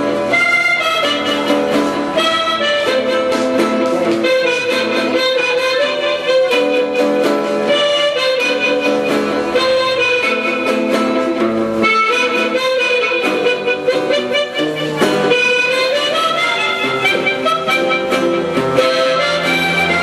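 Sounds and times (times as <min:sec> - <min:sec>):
harmonica melody: 0:00.0 - 0:20.0
strummed acoustic guitar: 0:00.0 - 0:20.0.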